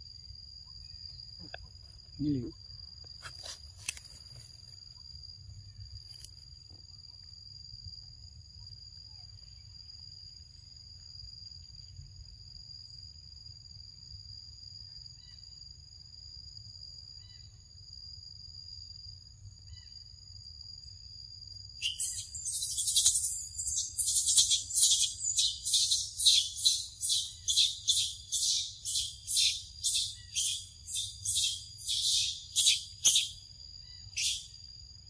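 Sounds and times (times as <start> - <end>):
insects droning: 0.0 - 35.0
faint short chirps: 21.8 - 33.4.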